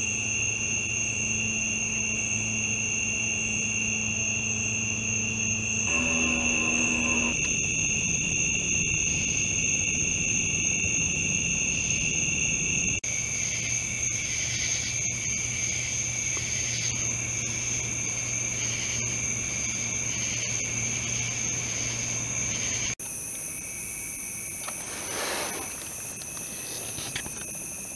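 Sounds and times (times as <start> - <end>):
crickets trilling: 0.0 - 27.9
slow pulsing insect call: 0.0 - 27.9
faint low hum: 5.9 - 13.0.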